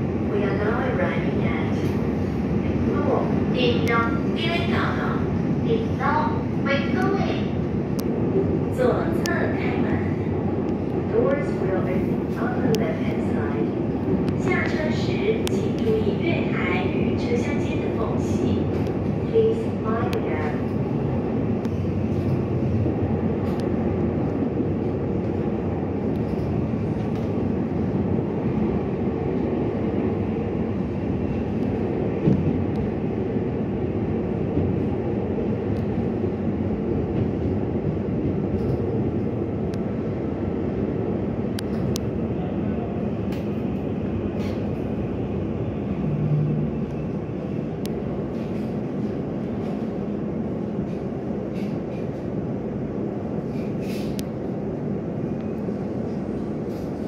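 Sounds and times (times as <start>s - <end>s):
train running noise: 0.0s - 57.0s.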